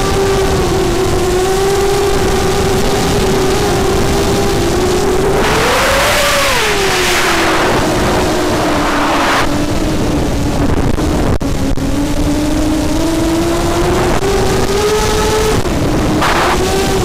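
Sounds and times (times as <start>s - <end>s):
wind rushing: 3.1s - 11.2s, 13.0s - 17.0s.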